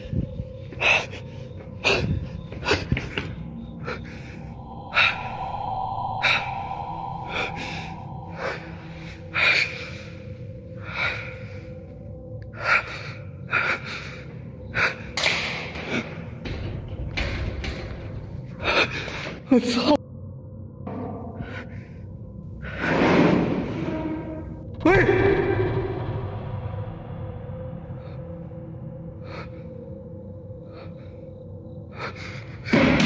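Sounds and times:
person gasping and exhaling: 0:03.8 - 0:10.2.

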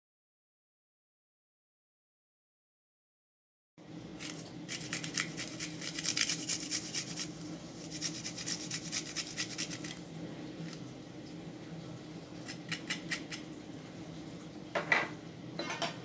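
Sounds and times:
low room hum: 0:03.8 - 0:16.0
garlic rasping on metal grater: 0:04.2 - 0:10.0, 0:12.4 - 0:13.4.

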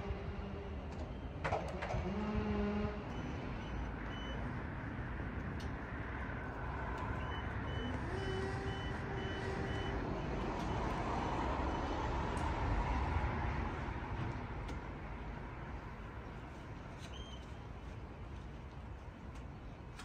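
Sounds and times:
backup alarm beeping: 0:03.0 - 0:04.6, 0:07.1 - 0:11.0
diesel engine running: 0:06.6 - 0:12.9.

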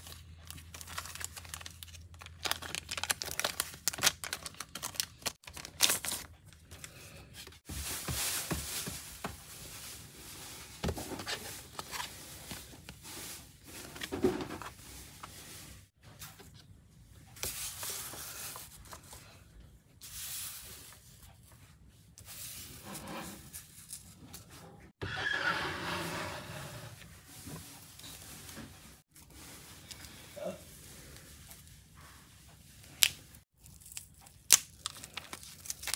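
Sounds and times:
plastic wrapping crinkling and tearing: 0:00.0 - 0:13.7, 0:33.0 - 0:35.9.

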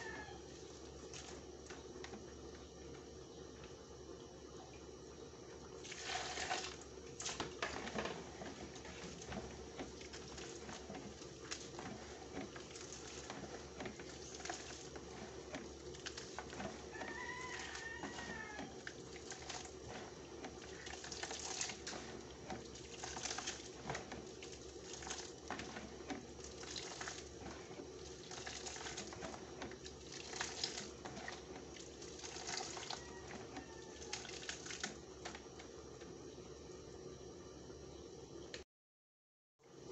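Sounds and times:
steady low hum: 0:00.0 - 0:17.0
wet squelches and splatters: 0:05.8 - 0:16.9, 0:17.7 - 0:19.8, 0:20.4 - 0:33.4, 0:34.0 - 0:35.0.

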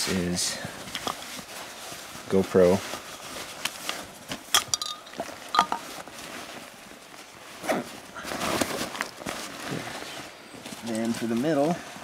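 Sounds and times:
nylon backpack rustling: 0:00.2 - 0:12.0
sharp clicks and clinks: 0:04.6 - 0:05.8.

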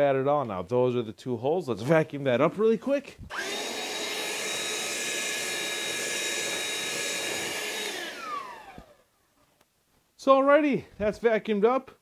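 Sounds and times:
handheld vacuum running: 0:03.3 - 0:09.0
vacuum motor winding down: 0:03.3 - 0:09.0.

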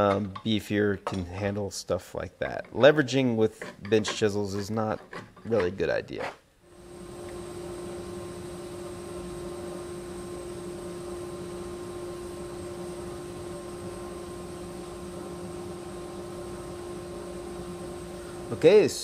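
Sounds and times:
machine hum and hiss: 0:06.6 - 0:19.0.

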